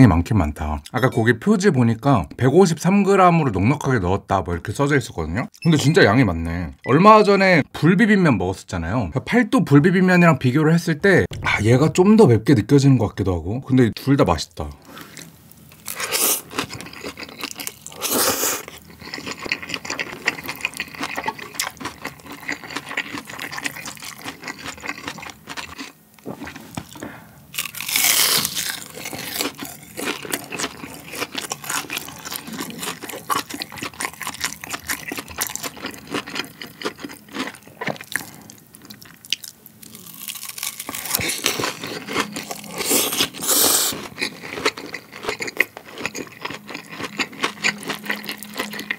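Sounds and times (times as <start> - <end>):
wet chewing: 15.0 - 27.0, 27.6 - 48.9
slurping noodles: 42.7 - 44.0.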